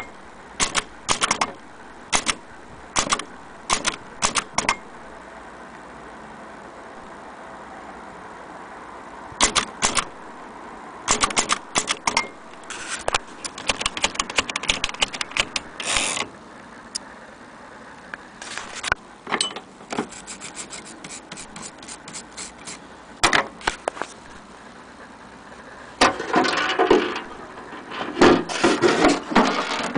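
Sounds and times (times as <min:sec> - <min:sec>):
typewriter rasp: 0:00.6 - 0:02.4, 0:03.0 - 0:04.8, 0:09.4 - 0:10.1, 0:11.1 - 0:16.3, 0:20.0 - 0:22.8
typewriter keys clacking: 0:11.1 - 0:12.2, 0:13.4 - 0:15.7.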